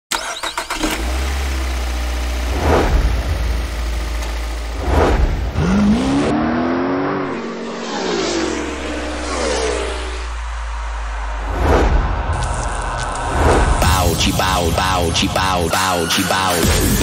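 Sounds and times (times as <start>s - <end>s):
engine revving: 0.1s - 17.0s
deep steady engine rumble: 1.0s - 5.9s
whooshes: 4.8s - 6.4s, 7.2s - 13.9s.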